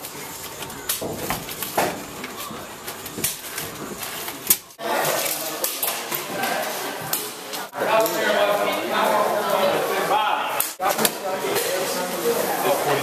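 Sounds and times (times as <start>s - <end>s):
murmur of indistinct voices: 0.0s - 13.0s.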